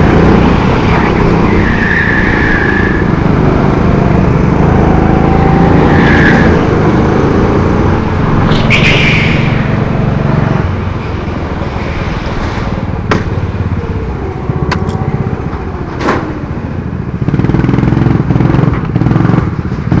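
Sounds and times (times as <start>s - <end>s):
kart engine running: 0.0s - 20.0s
sharp knocks: 12.4s - 13.4s.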